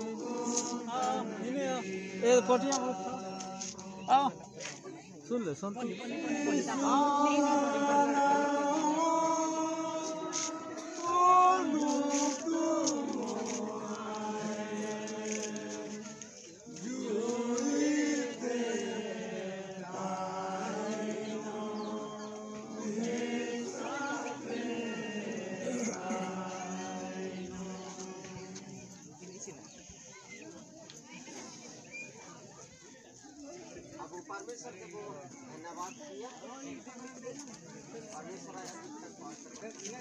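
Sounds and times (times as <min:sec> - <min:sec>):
voices singing a folk song: 0:00.0 - 0:30.2.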